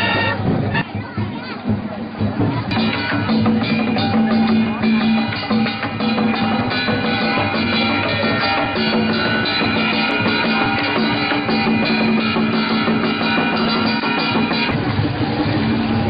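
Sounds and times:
brass band horns: 0.0 - 1.0
continuous drumming: 0.0 - 16.0.

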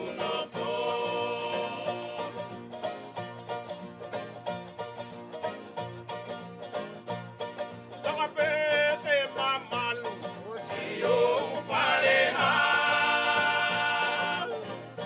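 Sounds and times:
person singing: 0.0 - 2.4, 8.1 - 14.9
strummed string accompaniment: 0.0 - 15.0.

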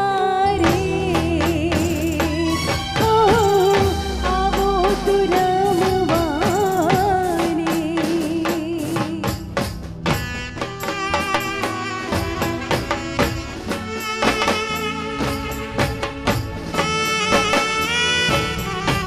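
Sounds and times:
woman singing through microphone: 0.0 - 9.5
band percussion beat: 0.6 - 19.0.

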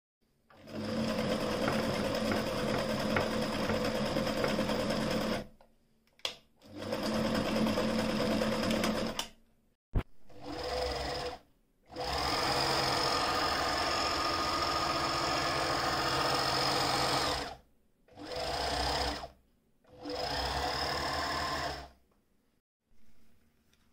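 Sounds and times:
sewing machine stitching: 0.5 - 5.5, 6.6 - 9.3, 10.3 - 22.0.

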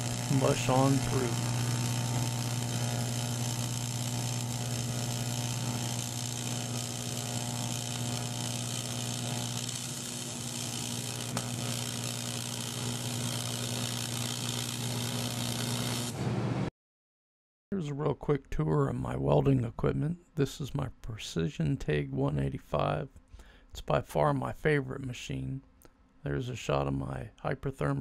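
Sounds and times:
welding arc buzzing: 0.0 - 16.3.

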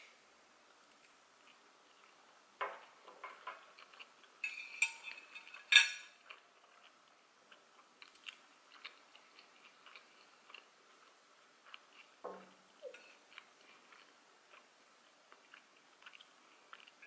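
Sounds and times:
chewing with wet mouth clicks: 3.3 - 4.4, 5.1 - 12.2, 12.8 - 17.0.

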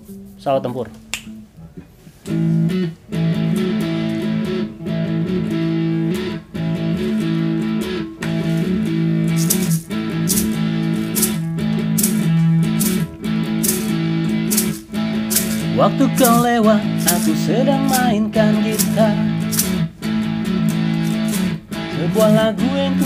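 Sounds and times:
acoustic guitar strumming chords: 2.3 - 23.0
sharp high clicks on beat: 8.2 - 23.0.

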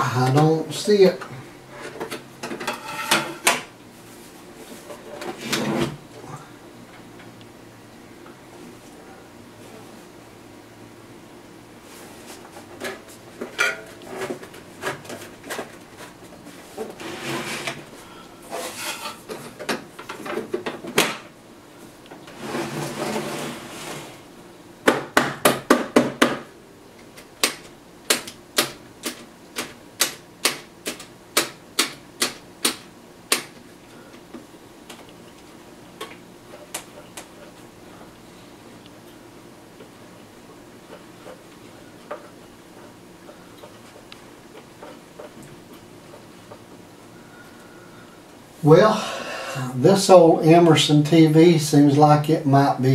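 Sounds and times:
plastic handling and rustling: 12.0 - 17.9.

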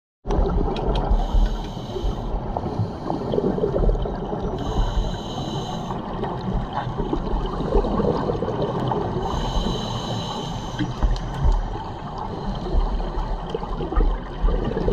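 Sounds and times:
exhaled bubbles gurgling: 0.3 - 14.9
low underwater rumble: 0.3 - 14.9
regulator hissing inhales: 1.2 - 3.4, 4.6 - 6.1, 9.2 - 11.1.

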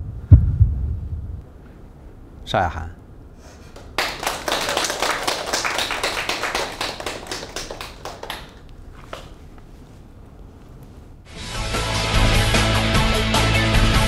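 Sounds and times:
group clapping: 3.6 - 9.4.

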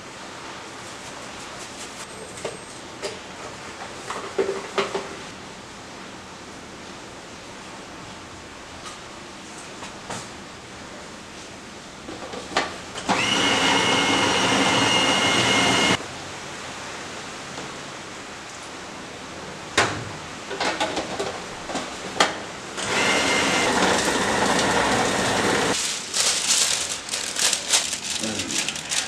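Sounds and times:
food processor motor whining: 13.0 - 16.0, 22.8 - 25.8.

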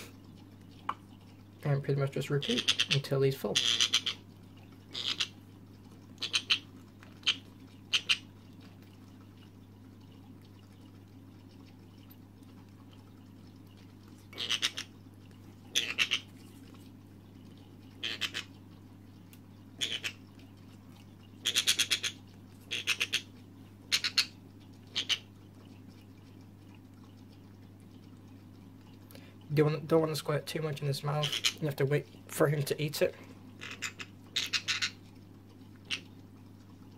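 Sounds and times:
parrot chick squawking: 3.6 - 4.2, 4.9 - 5.4, 6.2 - 8.2, 14.4 - 14.9, 15.7 - 16.3, 18.0 - 18.5, 19.8 - 20.2, 21.4 - 23.3, 23.9 - 24.3, 24.9 - 25.2, 31.2 - 31.6, 33.6 - 35.0.

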